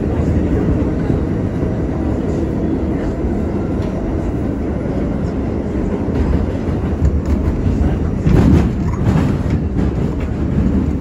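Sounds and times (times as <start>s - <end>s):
subway car rumbling: 0.0s - 11.0s.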